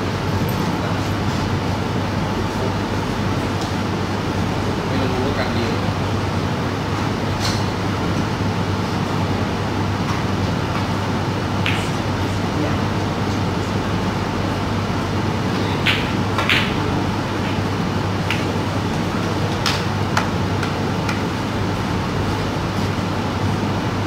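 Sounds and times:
steady hum: 0:00.0 - 0:24.0
cue tip striking ball: 0:11.6 - 0:12.1, 0:15.8 - 0:18.5
snooker balls clicking together: 0:11.6 - 0:12.1, 0:15.8 - 0:17.6.

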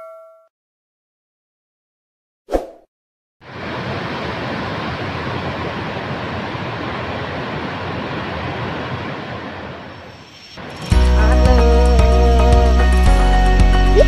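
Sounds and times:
waterfall rushing into pool: 0:03.4 - 0:11.1.

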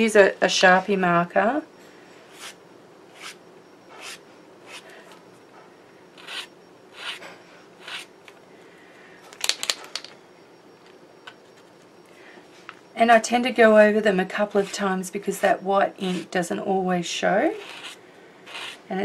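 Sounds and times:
marker drawing on paper: 0:02.3 - 0:03.4, 0:04.0 - 0:04.8, 0:06.2 - 0:07.2, 0:07.8 - 0:08.1, 0:17.6 - 0:18.8.

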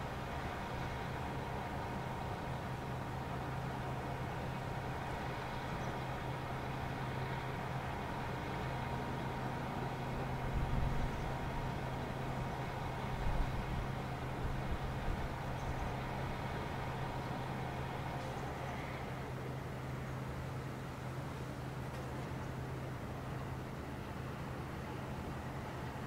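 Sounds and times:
traffic engine hum: 0:00.0 - 0:26.0.

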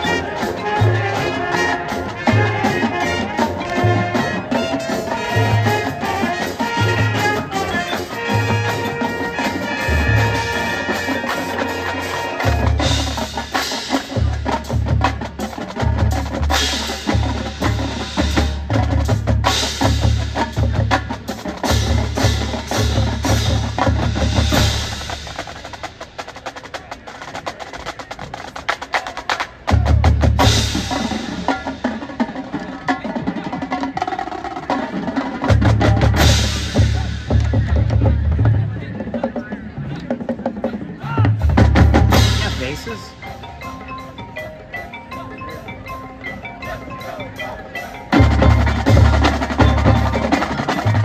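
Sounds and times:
mallet percussion: 0:00.0 - 0:25.3, 0:41.4 - 0:51.0
snare and tenor drums: 0:00.0 - 0:43.4, 0:46.7 - 0:51.0.

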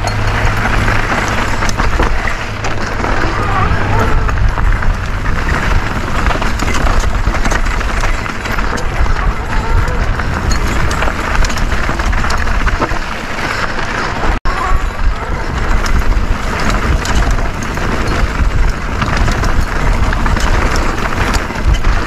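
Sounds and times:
bike rattling: 0:00.0 - 0:22.0
tyres on dirt: 0:00.0 - 0:22.0
wind buffeting microphone: 0:00.0 - 0:22.0.

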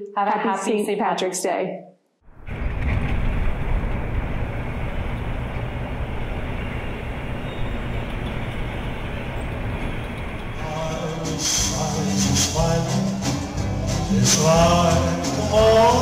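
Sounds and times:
vehicle engines idling: 0:02.8 - 0:14.8.

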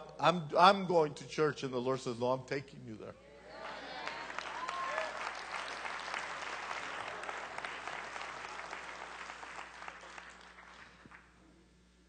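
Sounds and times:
crowd applauding: 0:03.6 - 0:11.4.

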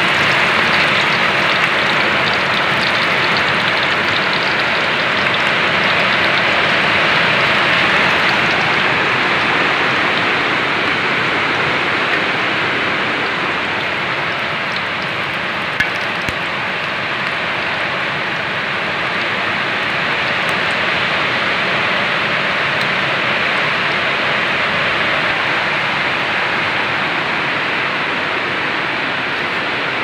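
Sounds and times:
fish sizzling in hot oil: 0:00.0 - 0:23.1.

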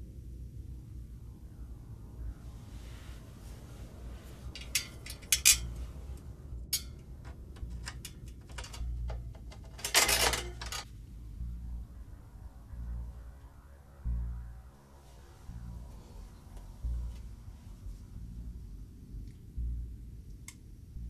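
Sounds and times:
metal grille rattling: 0:04.4 - 0:10.9
metallic clicks and clinks: 0:04.6 - 0:05.8, 0:06.7 - 0:10.9.

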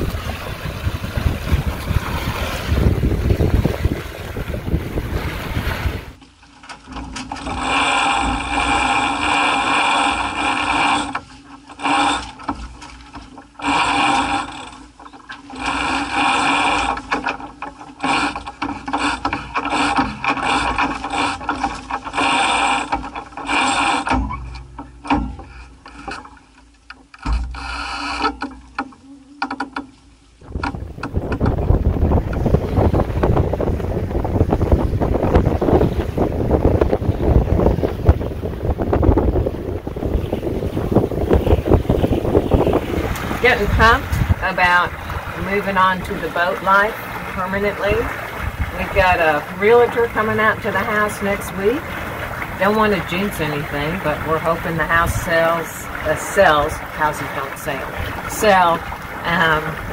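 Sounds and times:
water rushing: 0:00.0 - 0:59.9
wind: 0:00.0 - 0:59.9
winch ratcheting: 0:06.7 - 0:29.9.

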